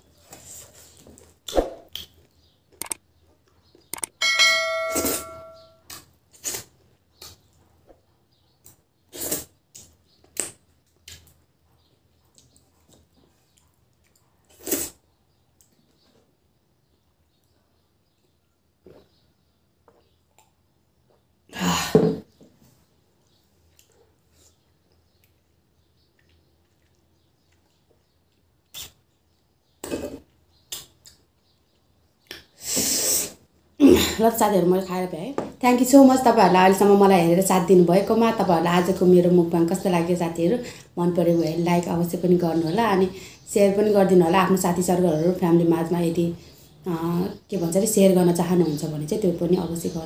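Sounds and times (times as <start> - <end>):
quiet chewing: 5.8 - 21.5, 22.8 - 32.6
wet mouth and finger smacks: 30.7 - 31.2.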